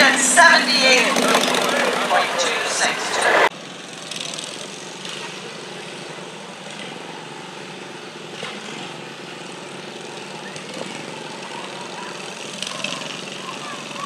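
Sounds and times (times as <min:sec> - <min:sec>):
sled dragging through dirt: 0:00.0 - 0:05.5
garden tractor engine under load: 0:00.0 - 0:14.0.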